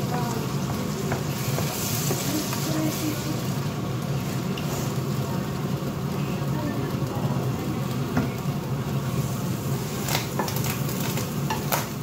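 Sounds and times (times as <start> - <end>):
food sizzling in a frying pan: 0.0 - 12.0
wooden spoon scraping and tapping: 0.7 - 2.6.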